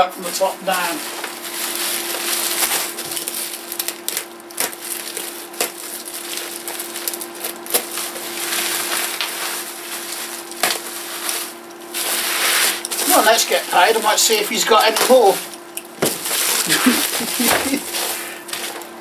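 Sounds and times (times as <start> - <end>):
bubble wrap crinkling: 0.2 - 19.0
bubble wrap crackles: 0.7 - 19.0.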